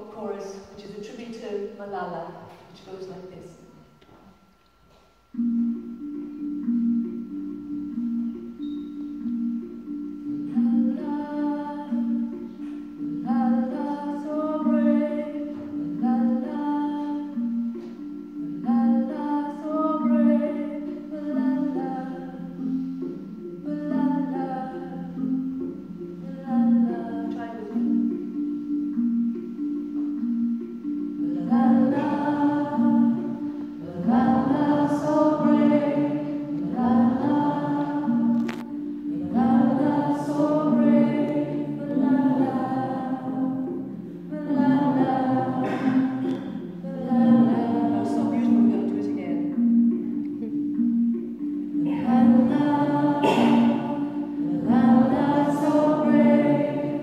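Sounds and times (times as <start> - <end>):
woman singing: 10.4 - 12.6, 13.2 - 17.6, 18.5 - 22.8, 23.6 - 25.3, 26.2 - 28.1, 31.2 - 43.7, 44.3 - 49.6, 51.8 - 57.0.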